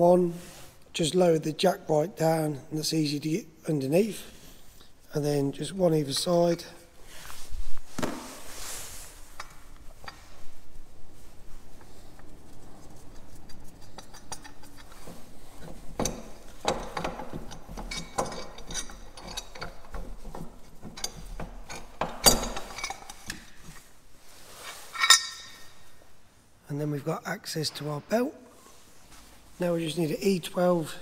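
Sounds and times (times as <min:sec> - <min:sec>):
metal tools clinking and knocking: 0:13.7 - 0:23.8, 0:24.9 - 0:25.8.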